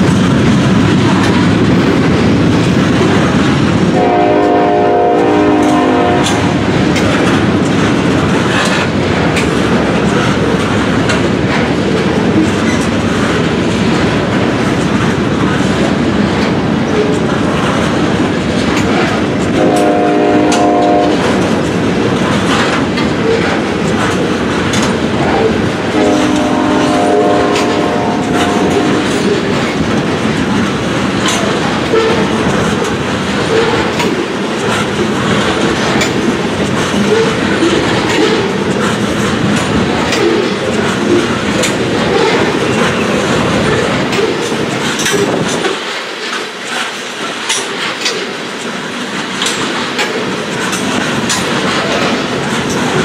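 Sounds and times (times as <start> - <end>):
train cars rumbling: 0.0 - 53.0
wheels clicking over rail joints: 0.0 - 53.0
locomotive horn: 3.9 - 6.6, 19.5 - 21.3, 25.3 - 29.4.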